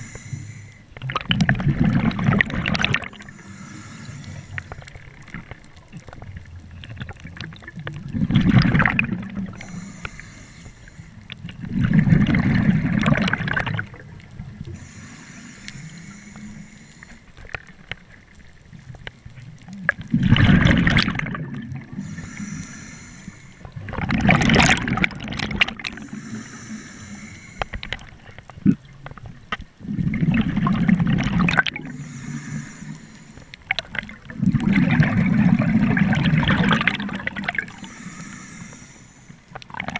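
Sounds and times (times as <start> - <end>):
regulator hiss: 0.0 - 0.9, 3.2 - 5.0, 9.5 - 11.2, 14.7 - 17.3, 21.9 - 23.8, 26.0 - 27.9, 31.9 - 33.6, 37.6 - 39.5
diver exhaling bubbles: 0.0 - 6.1, 7.0 - 10.1, 11.6 - 15.1, 19.9 - 28.9, 29.8 - 38.8.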